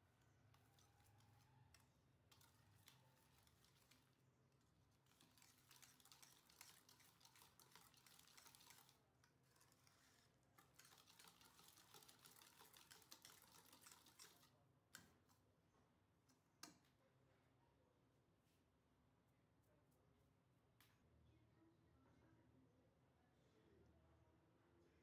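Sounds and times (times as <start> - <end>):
whisk beating batter in bowl: 0.0 - 14.5.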